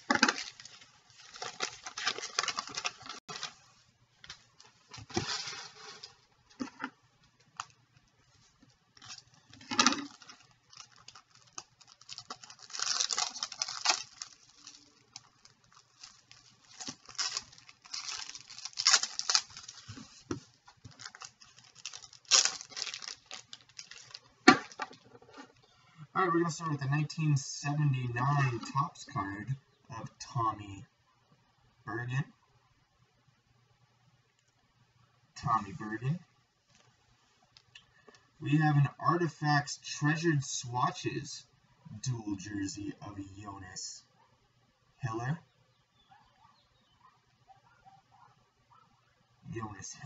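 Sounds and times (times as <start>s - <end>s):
foil wrapper rustling: 0.0s - 3.6s, 9.0s - 25.0s.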